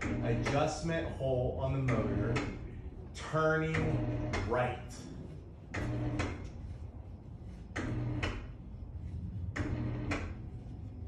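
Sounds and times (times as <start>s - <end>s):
mechanical whirring with clicks: 3.7s - 4.6s, 5.7s - 6.6s, 7.7s - 8.6s, 9.5s - 10.4s.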